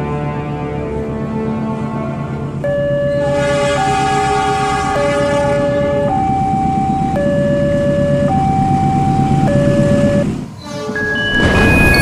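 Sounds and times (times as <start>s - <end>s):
two-tone hi-lo siren: 2.6s - 12.0s
steady low rumble: 4.9s - 10.5s.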